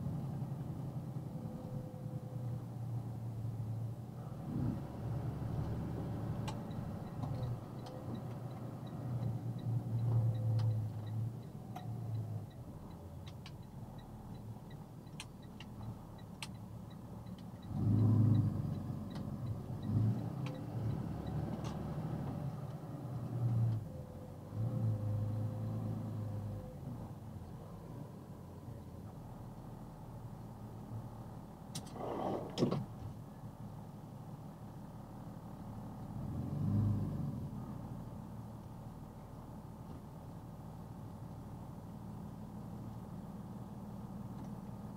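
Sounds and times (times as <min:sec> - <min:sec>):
truck engine from inside cab: 0:00.0 - 0:44.9
turn signal ticking: 0:05.6 - 0:24.0.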